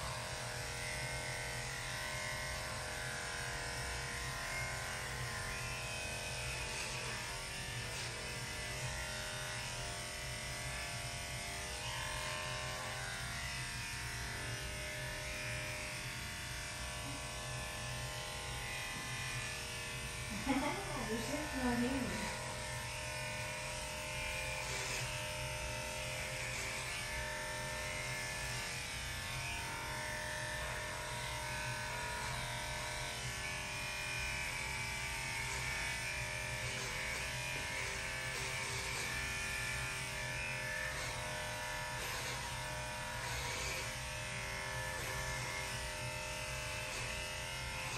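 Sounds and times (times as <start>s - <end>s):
electric clippers buzzing: 0.0s - 47.9s.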